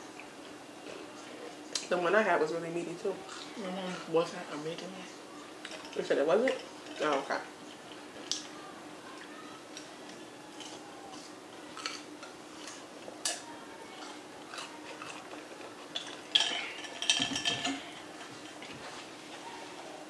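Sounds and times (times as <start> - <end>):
soft chewing: 3.1 - 4.1, 5.3 - 20.0.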